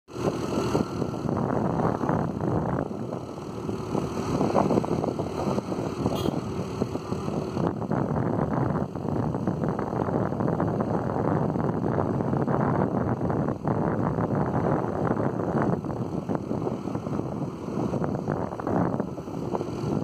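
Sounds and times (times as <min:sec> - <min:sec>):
scooter engine running: 0:00.1 - 0:08.7
wind buffeting microphone: 0:00.1 - 0:20.0.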